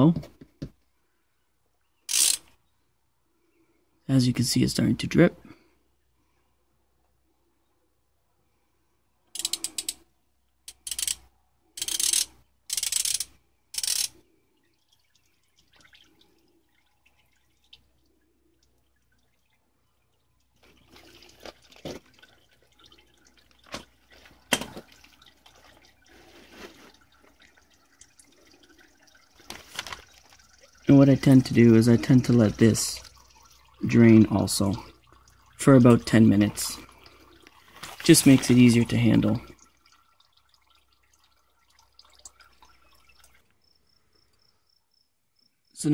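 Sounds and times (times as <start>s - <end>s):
ratchet clicking: 2.1s - 2.5s, 9.4s - 10.0s, 10.7s - 11.2s, 11.8s - 14.2s
oil dripping into a tray: 12.3s - 45.5s.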